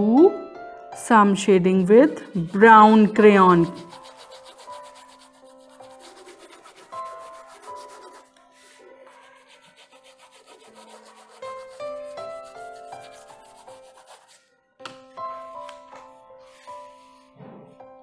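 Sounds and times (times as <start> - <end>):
soft background music: 0.0 - 18.0
crayon scratching on paper: 1.7 - 14.5, 16.4 - 17.3.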